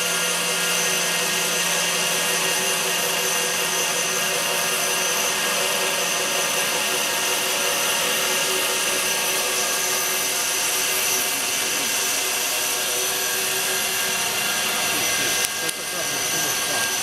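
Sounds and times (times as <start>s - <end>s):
foam-cutting machine droning: 0.0s - 17.0s.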